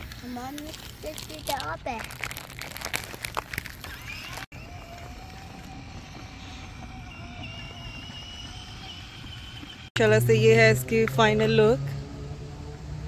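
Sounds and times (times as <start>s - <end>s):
small electric motor whining: 3.6s - 9.9s.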